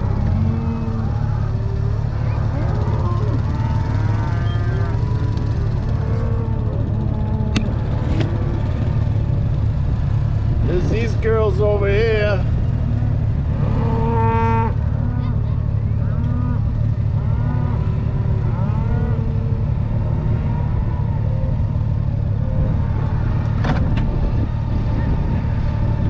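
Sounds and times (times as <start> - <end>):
cattle mooing: 0.0 - 9.1, 12.8 - 23.5
motorcycle engine running: 0.0 - 26.0.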